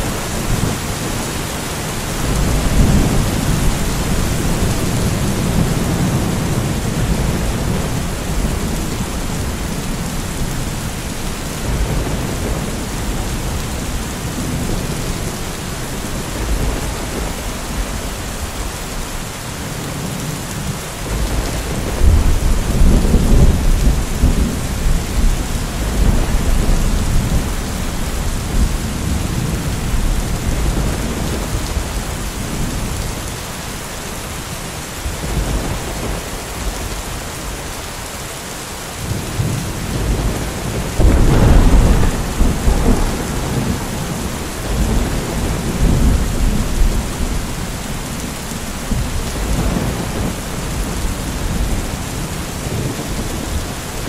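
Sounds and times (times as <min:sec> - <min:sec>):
steady rain: 0:00.0 - 0:54.0
rolls of thunder: 0:40.1 - 0:47.0.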